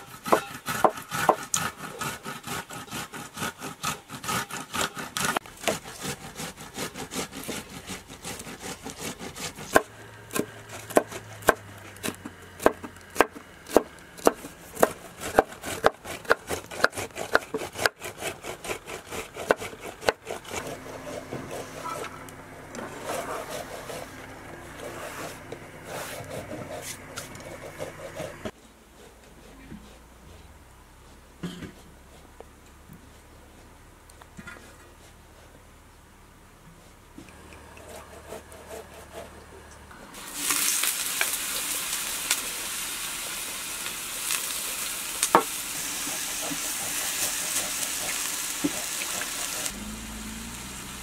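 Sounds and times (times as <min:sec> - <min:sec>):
tomatoes rasping on a grater: 0:00.0 - 0:12.2, 0:22.8 - 0:31.2, 0:40.4 - 0:49.8
soft scraping and rustling: 0:22.8 - 0:35.6.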